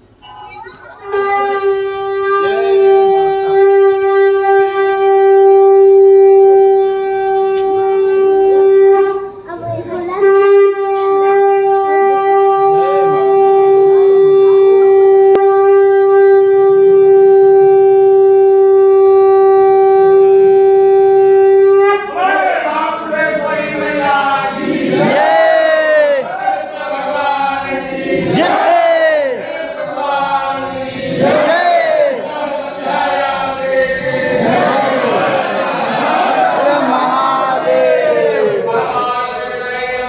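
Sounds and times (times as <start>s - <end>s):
faint murmur of voices: 0.0s - 40.0s
conch shell blasts: 1.0s - 9.4s.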